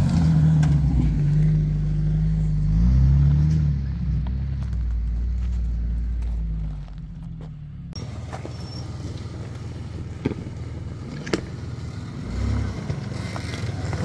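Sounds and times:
engine running at low speed: 0.0 - 14.0
stones clicking under tyres: 3.6 - 14.0.

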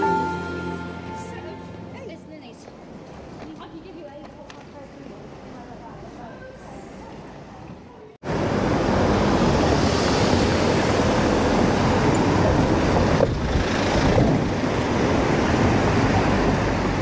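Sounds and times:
road traffic rushing: 0.0 - 3.9, 8.2 - 17.0
quiet street ambience: 0.0 - 17.0.

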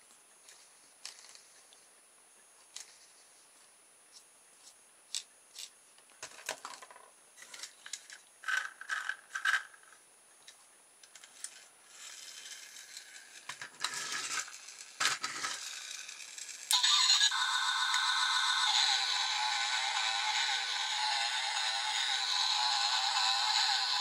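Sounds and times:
toy friction motor whirring: 11.4 - 24.0.

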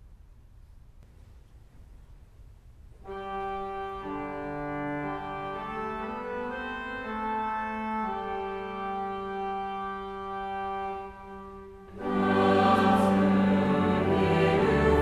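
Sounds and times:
organ playing sustained chords: 3.0 - 15.0.

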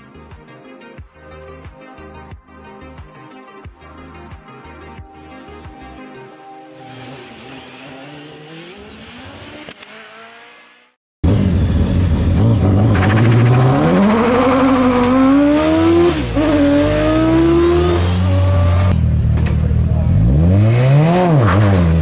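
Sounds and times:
background music: 0.0 - 8.1, 12.8 - 18.9
racing car engine accelerating: 6.8 - 22.0.

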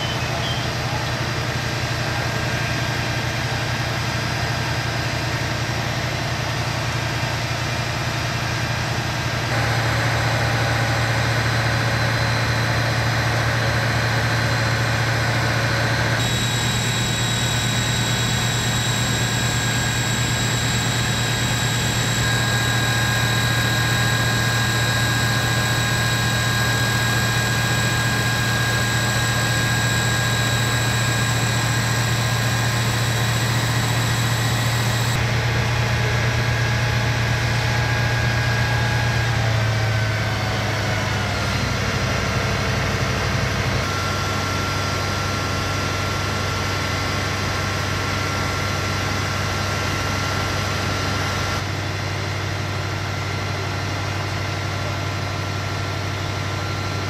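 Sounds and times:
engine droning: 9.5 - 35.6
high-pitched whines: 9.5 - 36.2.

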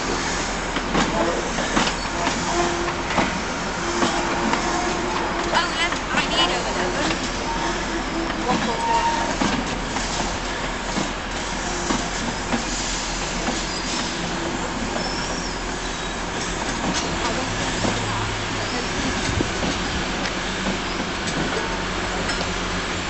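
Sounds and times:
train wheels clicking over rail joints: 0.6 - 6.1, 8.2 - 22.8
high wheel squeal: 14.9 - 16.2.

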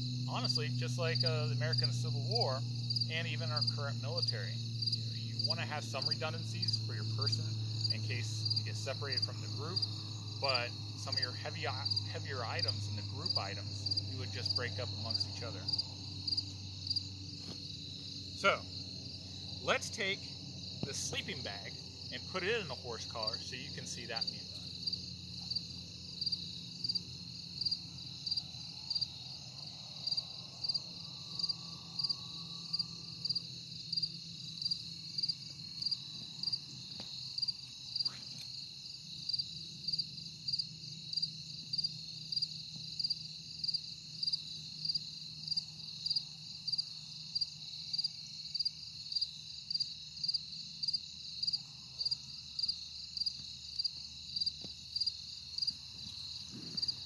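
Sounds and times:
continuous high trill: 0.0 - 42.3
crickets chirping: 0.0 - 57.0.

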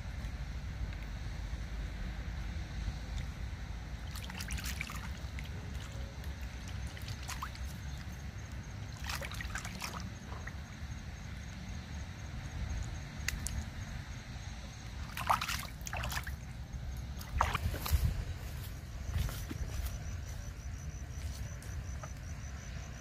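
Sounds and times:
low steady rumble: 0.0 - 23.0
water splashing in a basin: 4.0 - 10.8, 15.0 - 18.1.

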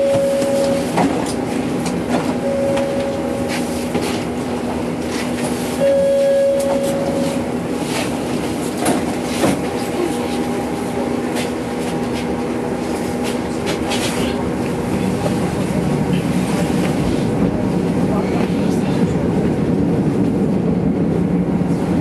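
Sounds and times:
long beep: 0.0 - 1.0, 2.4 - 3.6, 5.8 - 7.5
tram electrical hum: 0.0 - 22.0.

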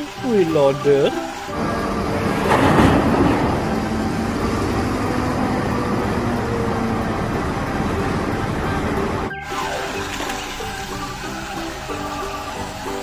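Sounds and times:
wheel loader diesel engine: 0.0 - 13.0.

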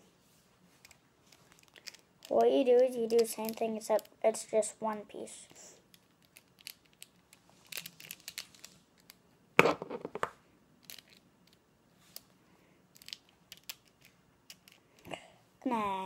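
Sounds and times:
plastic puzzle cube clicking: 3.1 - 4.1, 5.9 - 9.2, 10.8 - 11.6, 12.9 - 14.8.

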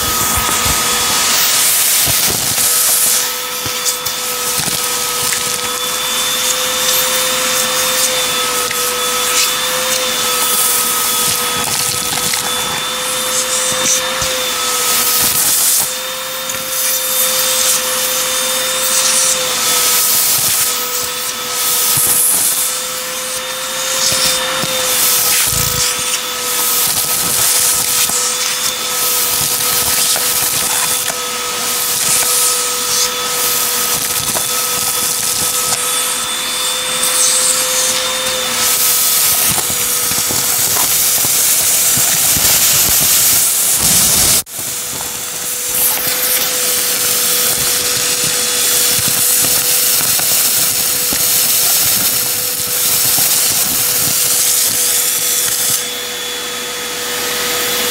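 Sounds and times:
vacuum cleaner whine: 0.0 - 57.9
grit crackling up a tube: 2.0 - 14.4, 23.9 - 35.9.

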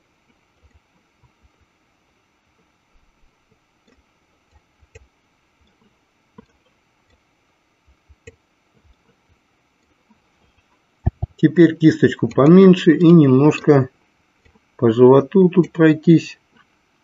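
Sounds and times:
computer mouse clicks: 3.8 - 7.2, 7.9 - 9.2, 11.0 - 11.4.

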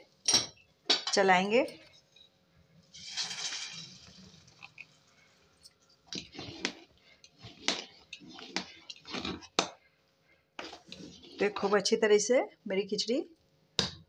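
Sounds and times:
thick food squelching while stirred: 3.9 - 12.0
ladle scraping pot: 6.0 - 9.8, 10.6 - 12.0.

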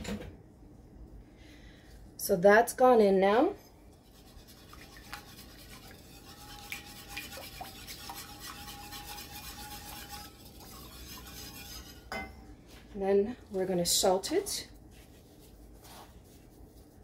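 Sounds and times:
whisk stirring sauce in pot: 3.9 - 12.2.

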